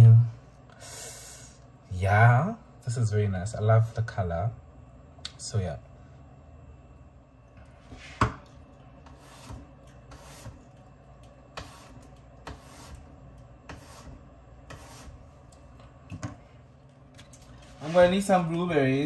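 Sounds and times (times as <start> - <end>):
knife slicing apple: 11.6 - 13.0, 13.7 - 15.3.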